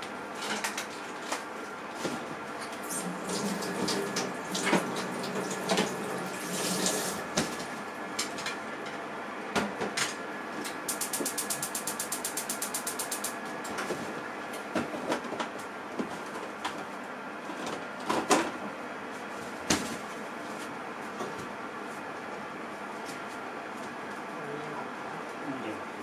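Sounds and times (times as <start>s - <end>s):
microwave oven hiss and hum: 0.0s - 26.0s
fast run of ticks: 10.9s - 13.3s
sharp clicks and crackles: 10.9s - 13.4s.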